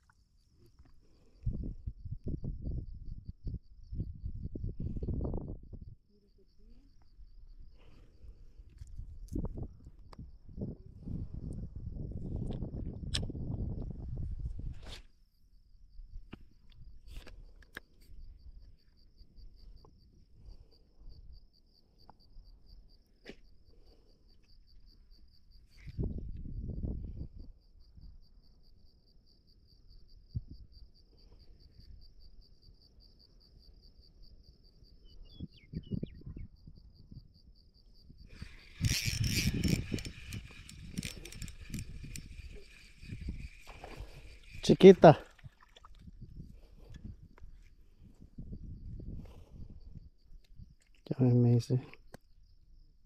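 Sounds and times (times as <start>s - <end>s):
insects trilling: 15.2s - 53.0s.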